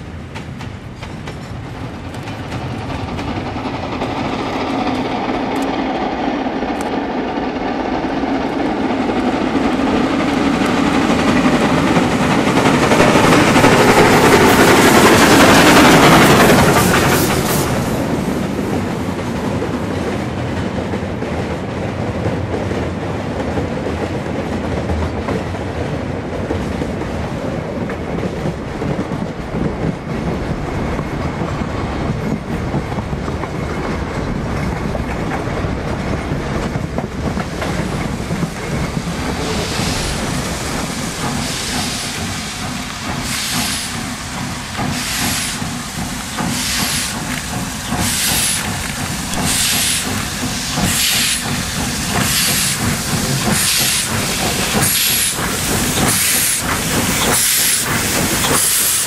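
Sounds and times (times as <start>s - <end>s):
steam locomotive passing: 0.0s - 59.0s
wagon wheels clickety-clack: 41.2s - 59.0s.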